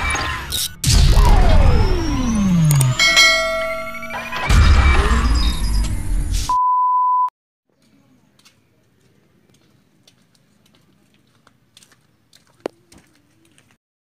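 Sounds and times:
loud intro music: 0.8 - 6.4
high electronic beep: 1.2 - 5.8.

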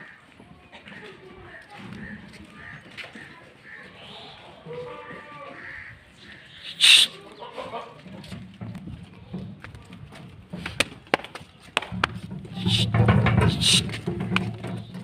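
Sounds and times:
short high calls: 6.5 - 7.2, 12.6 - 12.9
goats shuffling against rail: 7.0 - 15.0.

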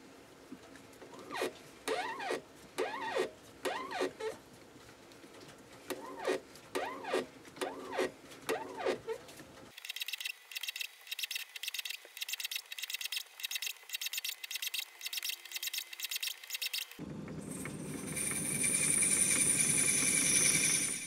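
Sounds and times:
lathe motor whining: 17.1 - 21.0.

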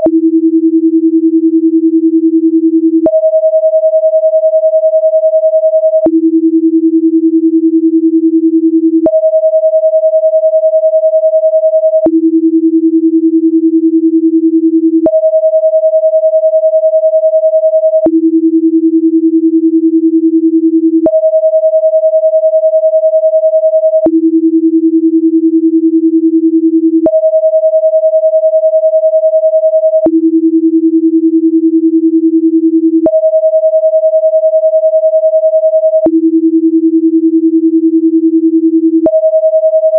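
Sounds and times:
electronic sine tones: 0.0 - 2.0, 2.8 - 6.8, 8.8 - 12.4, 14.9 - 18.3, 20.9 - 24.4, 26.8 - 30.4, 32.8 - 39.9.

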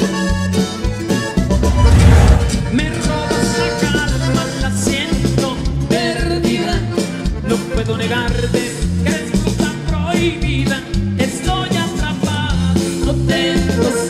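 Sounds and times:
norteno band music: 0.9 - 5.9.

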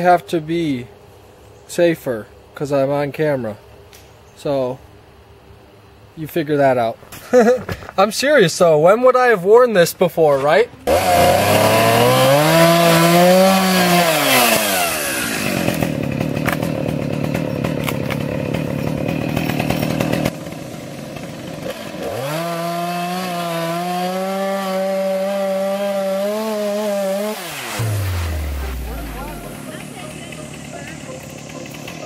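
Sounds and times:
chainsaw cutting tree trunk: 10.8 - 32.0.

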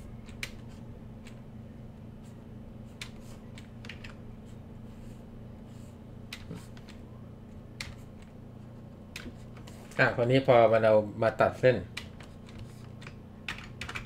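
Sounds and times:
low electrical hum: 0.0 - 14.0
computer keys clicking: 0.2 - 0.6, 3.0 - 4.2, 11.9 - 14.0.

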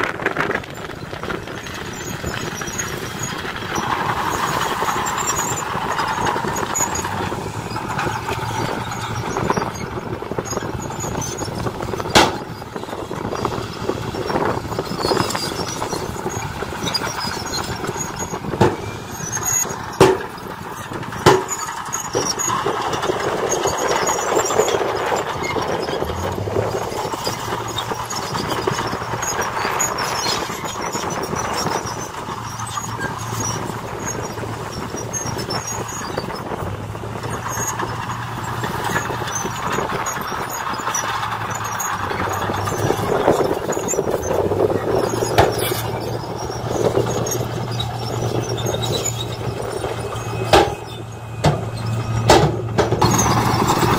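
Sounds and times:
dump truck engines running: 0.0 - 53.9
hydraulic hoists working: 2.0 - 53.9
sharp metal knocks: 12.0 - 12.5, 18.5 - 18.9, 20.0 - 20.4, 21.2 - 21.7, 50.4 - 53.9.

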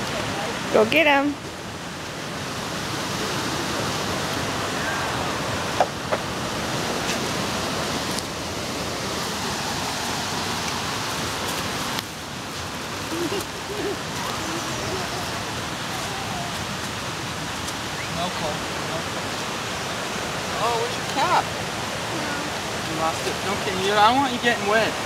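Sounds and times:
river rushing: 0.0 - 25.0.

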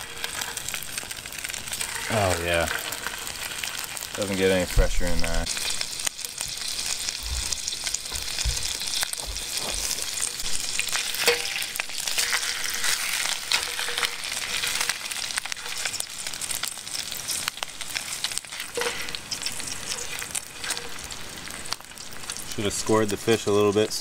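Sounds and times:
fish sizzling in a pan: 0.0 - 24.0.

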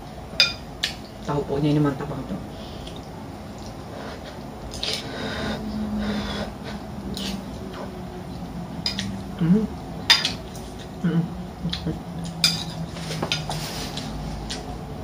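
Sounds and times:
low hum: 2.2 - 15.0.

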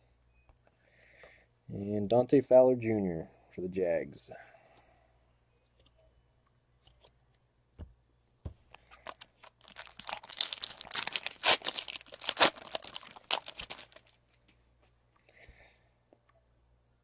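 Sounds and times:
foil wrapper tearing and crinkling: 8.8 - 14.1.

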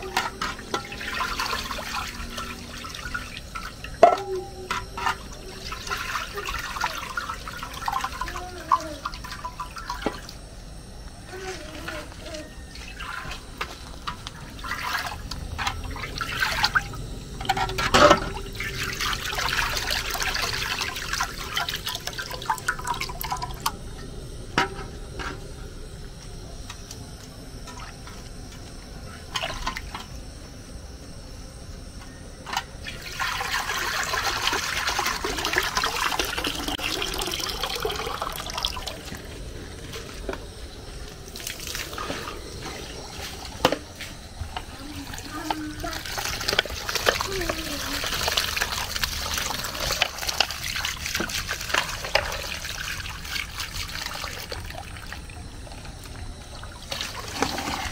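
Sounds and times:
water splashing and sloshing: 0.0 - 25.4, 26.8 - 30.2, 32.5 - 57.9
strainer knocking metal basin: 3.6 - 5.2.

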